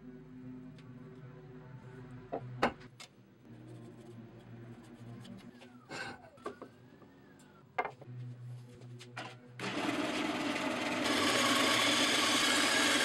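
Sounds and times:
tools knocking on wooden bench: 7.8s - 8.1s.

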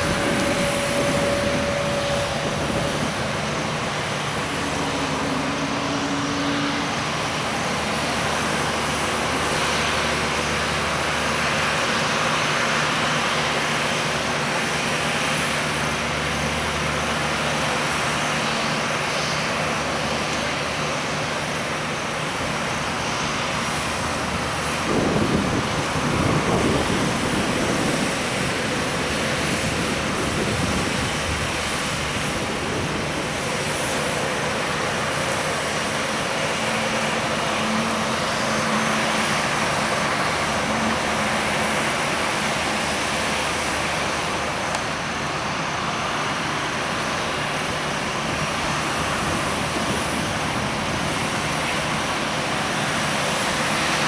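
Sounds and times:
low rumble surge: 0.0s - 11.3s
jet engines running: 0.0s - 54.0s.

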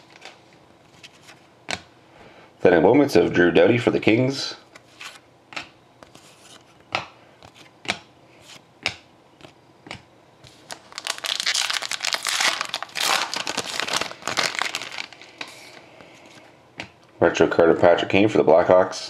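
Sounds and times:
wrapper crinkling and tearing: 10.5s - 15.8s.

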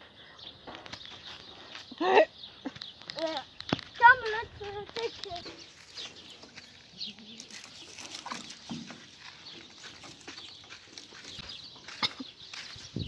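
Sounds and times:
faint farm animal calls: 0.2s - 12.9s
hoof scuffs: 2.7s - 13.0s
sheep shuffling in a pen: 3.1s - 13.0s.

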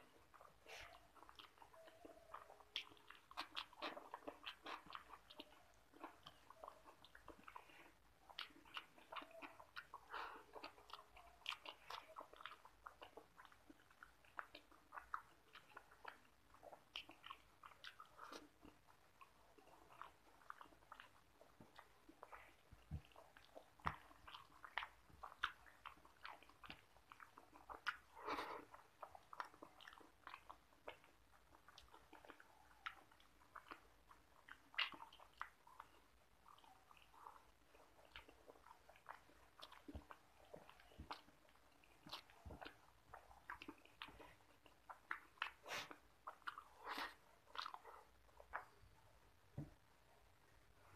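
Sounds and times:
lip smacks: 0.0s - 50.4s
wet chewing clicks: 0.0s - 50.9s.

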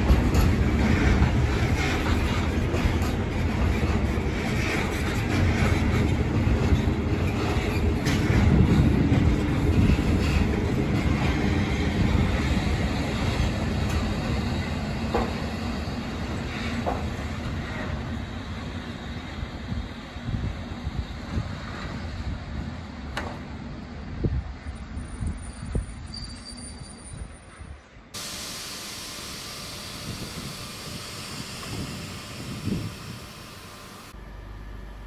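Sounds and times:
train wheels rumbling and clacking: 0.0s - 26.5s
brief wheel squeaks: 25.1s - 27.7s.

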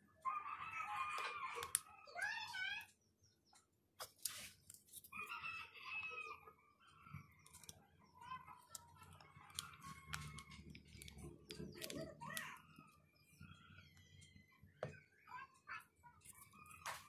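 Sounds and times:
rooster crowing: 5.1s - 6.6s.

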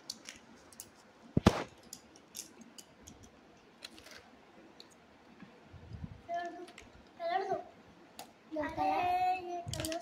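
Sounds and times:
pens and crayons clicking: 0.0s - 4.2s, 9.6s - 10.0s.

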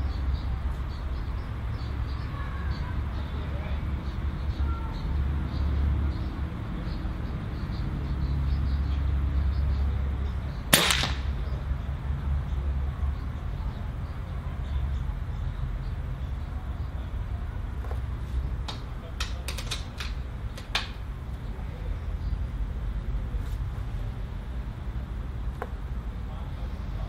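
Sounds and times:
air rifle shot crack: 10.7s - 11.6s.

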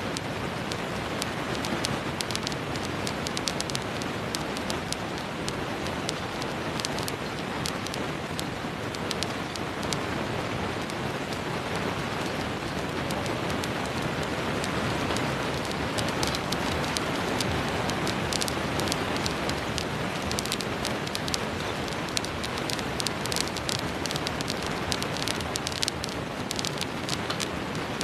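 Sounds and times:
seeds crackling and popping: 0.0s - 28.0s.

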